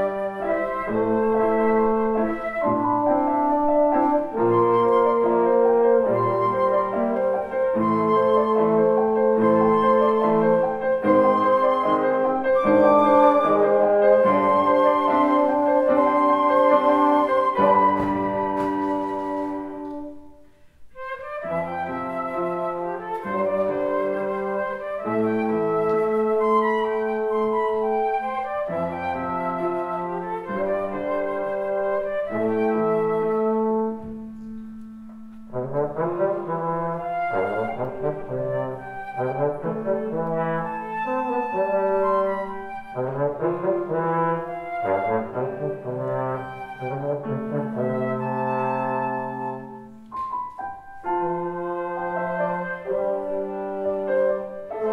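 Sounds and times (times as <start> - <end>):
chamber ensemble playing: 0.0 - 54.9
flutes playing chords: 0.0 - 54.9.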